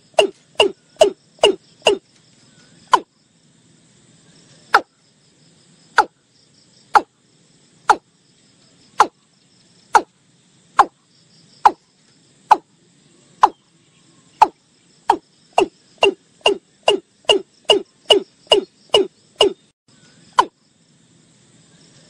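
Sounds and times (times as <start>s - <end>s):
bird calling low notes: 12.5s - 19.7s.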